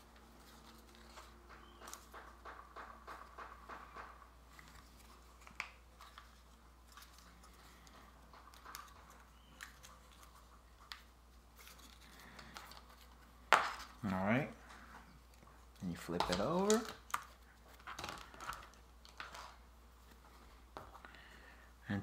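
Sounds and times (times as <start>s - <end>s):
fingers handling wooden pieces: 0.0s - 21.4s.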